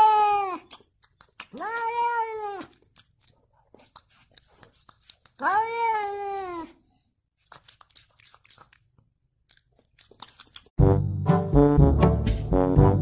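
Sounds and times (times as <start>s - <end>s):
cat meowing: 1.5s - 2.8s, 5.4s - 6.8s
brass music: 10.8s - 13.0s.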